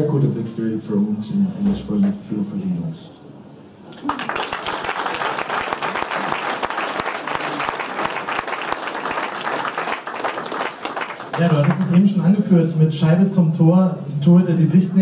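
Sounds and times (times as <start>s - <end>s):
crowd applauding: 3.9s - 12.2s.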